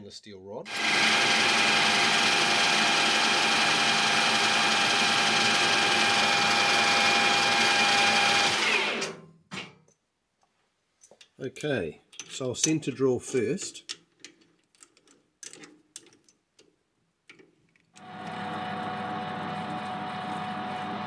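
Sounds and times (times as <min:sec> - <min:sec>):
metal lathe whine: 0:00.7 - 0:09.2, 0:18.0 - 0:21.0.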